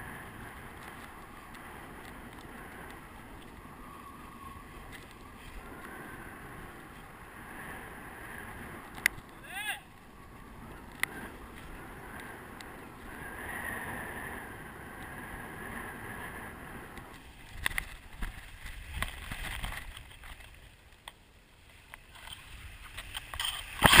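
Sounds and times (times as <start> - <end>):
wind rushing past camera: 0.0 - 20.8.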